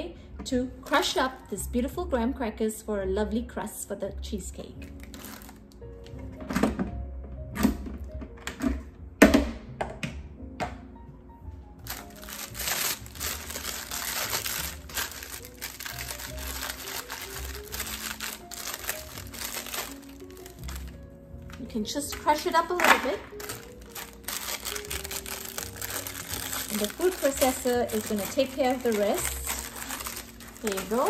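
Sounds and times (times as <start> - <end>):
background music: 0.0 - 31.0
plastic packet crinkling: 4.8 - 5.8, 11.9 - 31.0.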